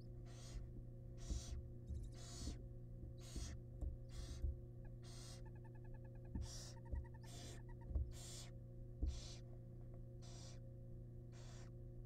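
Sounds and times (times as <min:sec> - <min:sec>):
electrical hum: 0:00.0 - 0:12.0
owl nestlings begging hisses: 0:00.2 - 0:02.6, 0:03.2 - 0:04.4, 0:05.0 - 0:05.6, 0:06.4 - 0:08.5, 0:09.1 - 0:09.4, 0:10.2 - 0:10.6, 0:11.3 - 0:11.7.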